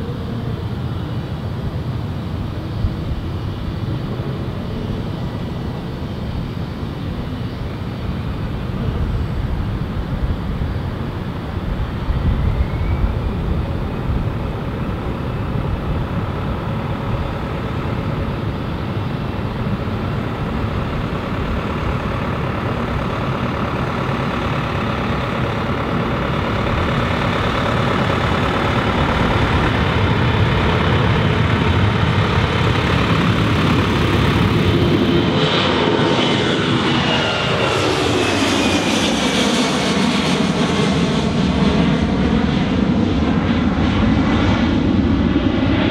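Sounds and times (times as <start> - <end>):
jet engines roaring at takeoff: 0.0 - 45.9.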